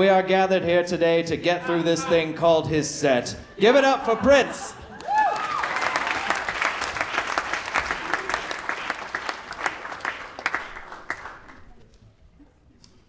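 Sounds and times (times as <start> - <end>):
audience applauding: 4.9 - 11.9.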